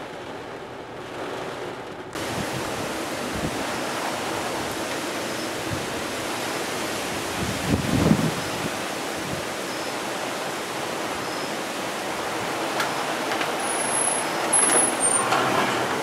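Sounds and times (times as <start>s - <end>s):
low buffeting rumble: 0.0s - 11.2s
wind rushing: 1.1s - 9.6s.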